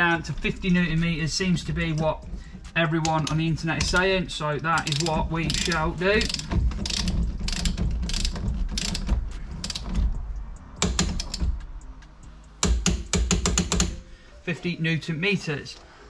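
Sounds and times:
ratchet wrench clicking: 4.8s - 12.0s.

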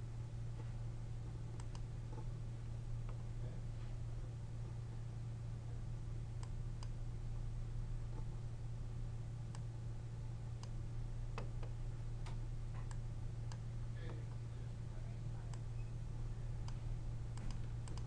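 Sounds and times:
steady low hum: 0.0s - 18.0s
computer mouse clicks: 1.6s - 2.2s, 11.4s - 13.6s, 17.4s - 18.0s.

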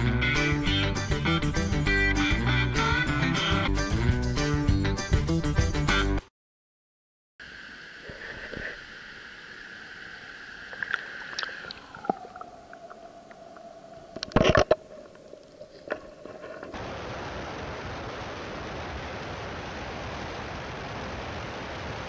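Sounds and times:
muffled underwater stream gurgling: 7.4s - 17.9s.

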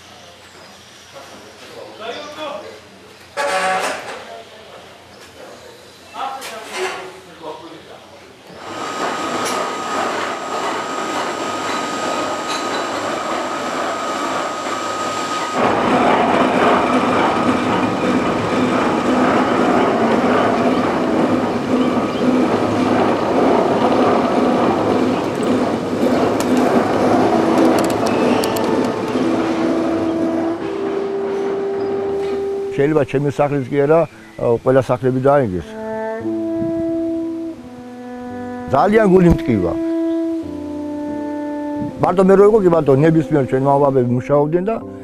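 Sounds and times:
ropeway machinery whine and clatter: 8.5s - 34.0s
drawn-out metallic tones: 8.6s - 34.2s.

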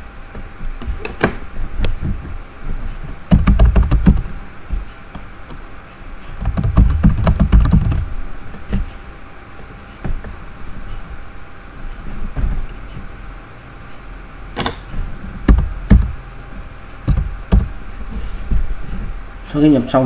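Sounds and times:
computer keyboard typing: 3.3s - 4.3s, 6.4s - 8.1s.

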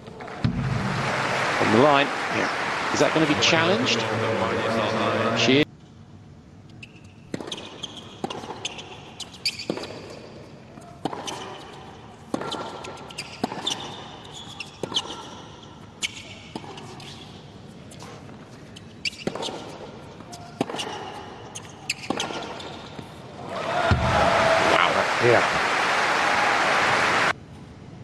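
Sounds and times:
low crowd noise: 0.0s - 5.7s
racquet hitting tennis ball: 0.2s - 1.6s, 7.3s - 8.8s, 11.0s - 11.7s, 12.3s - 14.2s, 19.1s - 23.1s, 23.7s - 24.2s
shoe squeaks on court: 6.7s - 23.2s.

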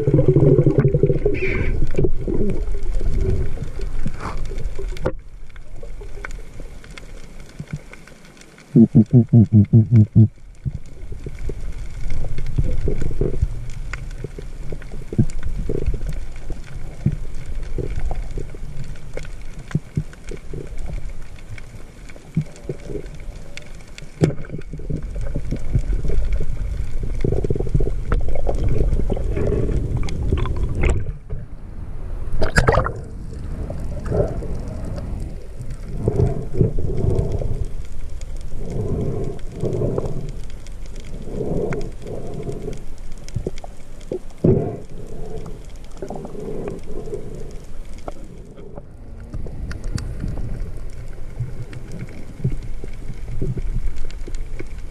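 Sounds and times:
muffled underwater water rumble: 0.0s - 54.9s.

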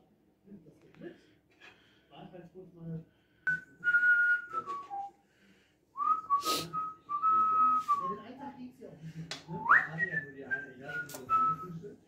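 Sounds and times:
person whistling a tune: 3.5s - 5.1s, 6.0s - 8.1s.

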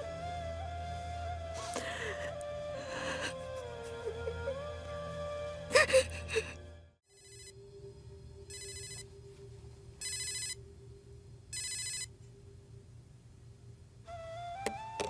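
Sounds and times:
faint low drone: 0.0s - 14.4s
mobile phone ringing: 7.1s - 7.6s, 8.5s - 9.1s, 10.0s - 10.6s, 11.5s - 12.1s.

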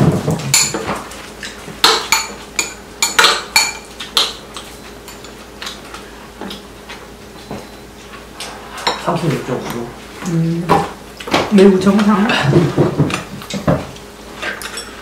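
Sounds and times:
utensils clinking on ceramic bowls: 1.9s - 5.8s, 14.4s - 15.0s.

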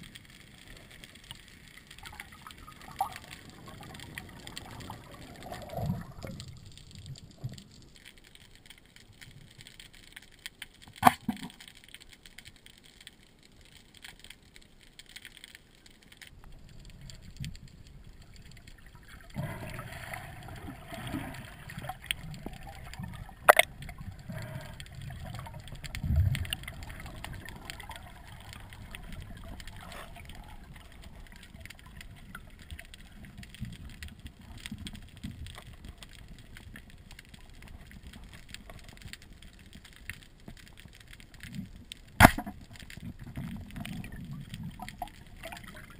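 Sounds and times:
underwater bubbling: 0.0s - 45.9s.

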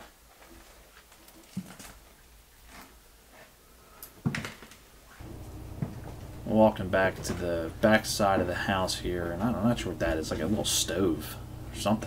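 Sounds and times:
footsteps in empty room: 5.2s - 6.5s.

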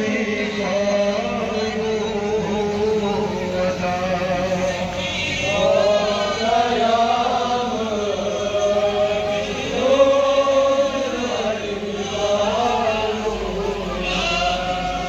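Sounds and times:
man reciting into a microphone: 0.0s - 15.0s
men chanting a lament: 0.0s - 15.0s.

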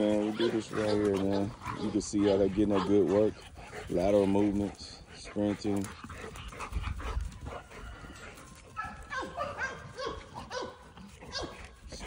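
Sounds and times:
dogs yipping and whining: 0.0s - 3.6s, 6.8s - 11.8s.

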